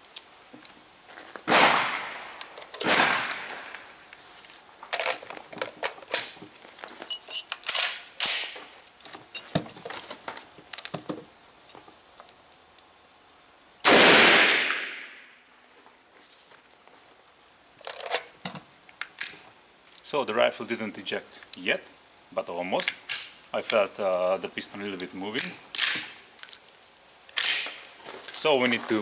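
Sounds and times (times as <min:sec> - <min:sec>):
gunshots with long echo: 0:01.5 - 0:03.9, 0:13.8 - 0:15.2.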